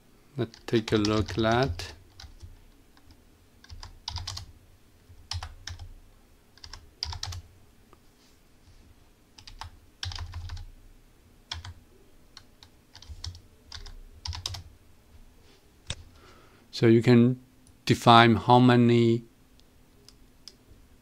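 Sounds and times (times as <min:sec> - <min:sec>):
computer keyboard typing: 0:00.4 - 0:04.5, 0:05.2 - 0:05.9, 0:06.6 - 0:07.4, 0:09.4 - 0:10.7, 0:11.5 - 0:11.8, 0:12.4 - 0:14.7.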